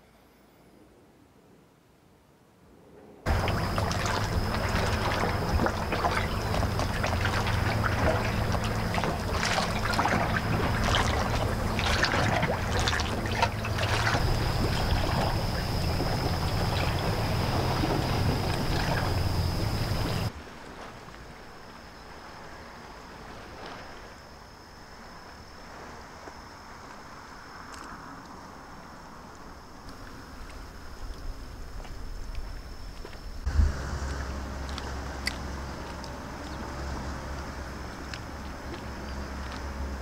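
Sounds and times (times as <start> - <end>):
wind: 0.0 - 40.0
boat engine idling: 3.3 - 20.3, 33.5 - 40.0
high-pitched whine: 3.3 - 20.3
water sloshing against hull: 3.3 - 27.0, 29.8 - 40.0.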